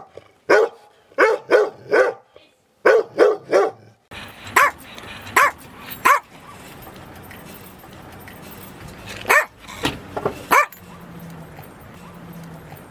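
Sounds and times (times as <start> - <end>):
small dog barking: 0.0 - 3.9, 4.6 - 4.8, 5.4 - 6.6, 9.2 - 9.6, 10.5 - 11.1.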